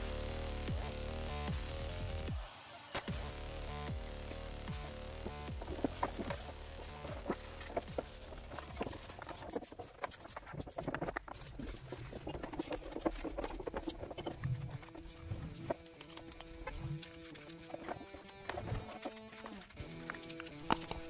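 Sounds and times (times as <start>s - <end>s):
brush scrubbing plastic: 5.2s - 21.0s.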